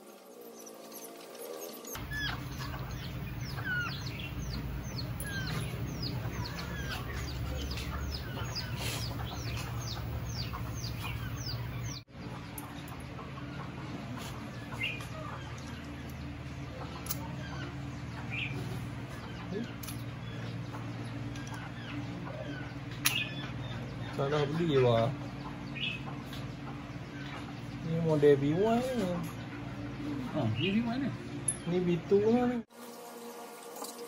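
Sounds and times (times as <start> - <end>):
birds chirping: 0.0 - 32.7
steady low hum: 2.0 - 32.7.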